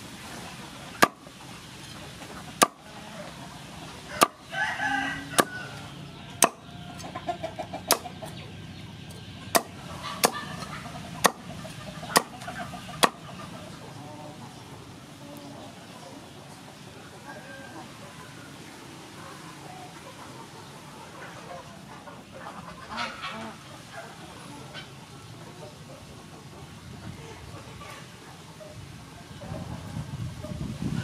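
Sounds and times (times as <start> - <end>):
chicken clucking: 0.3 - 30.7
cleaver chopping on wooden board: 2.6 - 2.8, 4.2 - 4.4, 6.4 - 6.6, 9.5 - 10.4, 11.2 - 11.5, 12.1 - 12.4.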